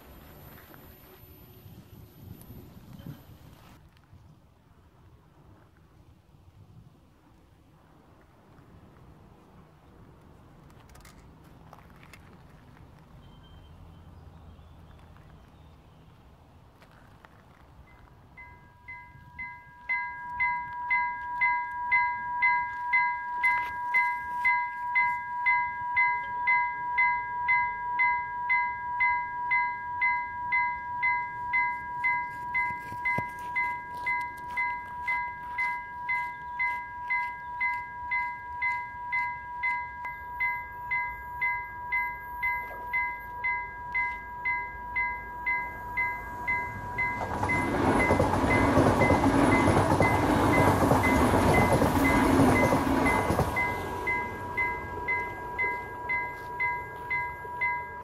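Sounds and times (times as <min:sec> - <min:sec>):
level crossing bell ringing: 0:18.4 - 0:58.0
steady electronic tone: 0:18.4 - 0:58.0.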